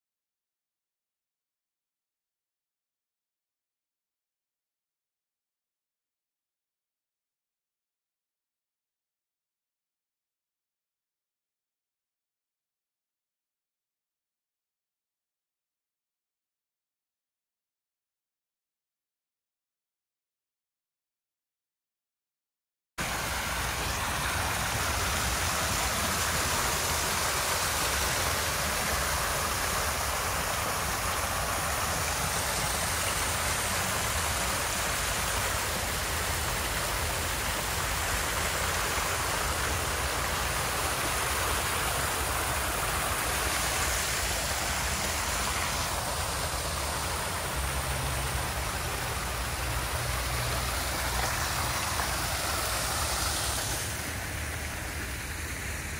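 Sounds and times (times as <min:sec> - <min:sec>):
waterfall rushing: 0:23.0 - 0:55.9.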